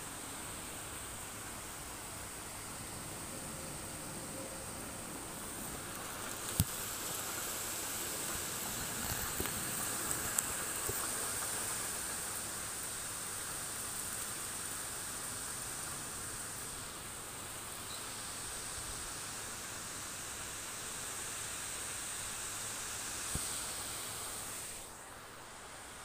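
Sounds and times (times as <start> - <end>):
light rain on roof and leaves: 0.0 - 26.0.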